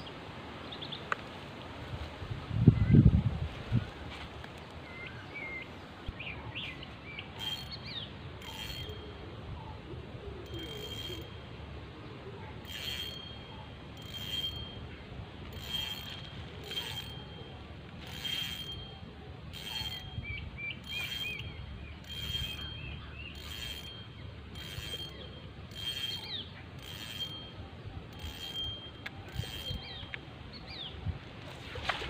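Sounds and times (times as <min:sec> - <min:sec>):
wind on microphone: 0:01.8 - 0:04.3
bird chirping: 0:04.8 - 0:09.8, 0:18.7 - 0:31.0
fishing reel whirring: 0:07.3 - 0:09.2, 0:10.4 - 0:11.6, 0:12.6 - 0:14.9, 0:15.5 - 0:20.2, 0:20.8 - 0:30.2.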